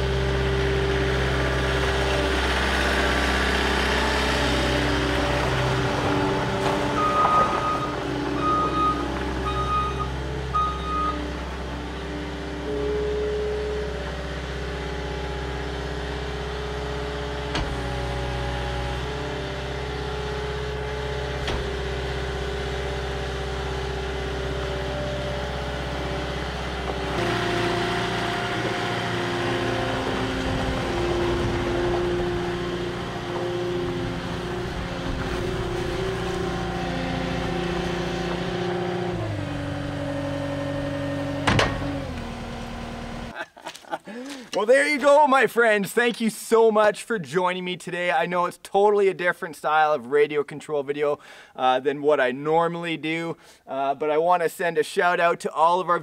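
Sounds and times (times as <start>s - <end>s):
diesel engine running: 0.0s - 45.3s
backup alarm beeping: 6.9s - 11.3s.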